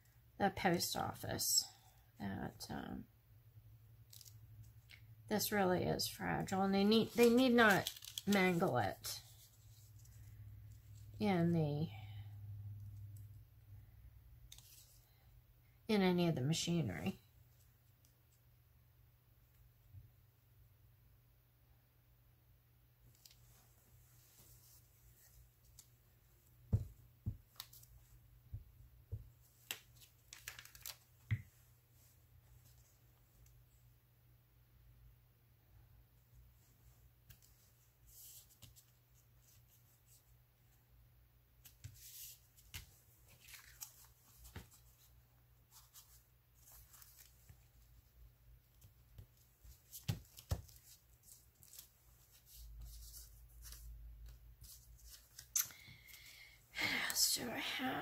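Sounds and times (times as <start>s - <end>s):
paper crinkling and rustling: 7.0s - 10.2s, 29.6s - 31.2s, 41.6s - 45.1s, 45.7s - 47.9s.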